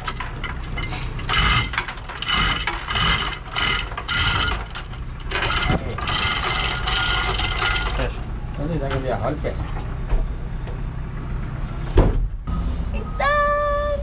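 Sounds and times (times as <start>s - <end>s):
hoist pawl clicking: 0.0s - 8.2s
chain rattling: 0.0s - 8.3s.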